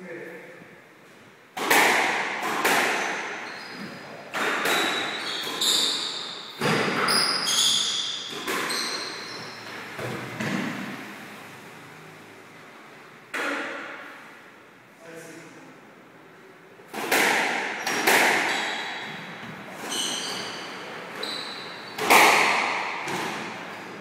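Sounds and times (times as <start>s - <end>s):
squash ball cracks: 1.6s - 3.4s, 16.9s - 18.5s, 22.0s - 23.6s
shoe squeaks: 3.0s - 10.0s, 17.8s - 22.3s.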